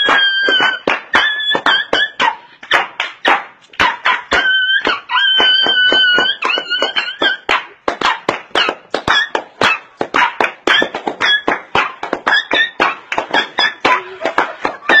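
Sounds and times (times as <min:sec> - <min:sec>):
upbeat dance music: 0:08.6 - 0:15.0.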